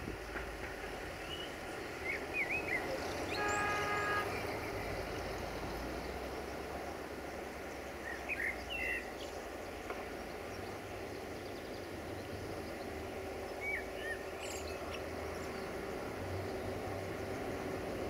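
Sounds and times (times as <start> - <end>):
distant diesel locomotive rumble: 0.0 - 18.0
small birds chirping: 7.2 - 17.6.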